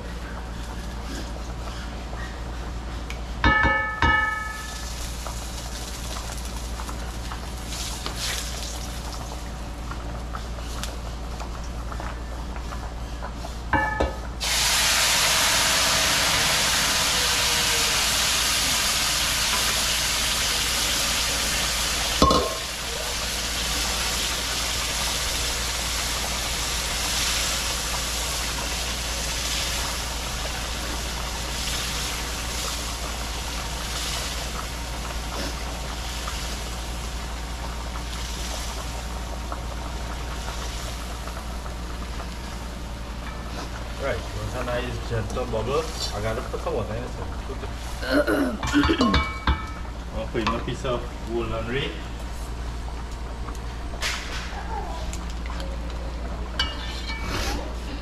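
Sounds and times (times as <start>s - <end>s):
food sizzling in hot oil: 3.5s - 10.3s, 13.7s - 51.2s.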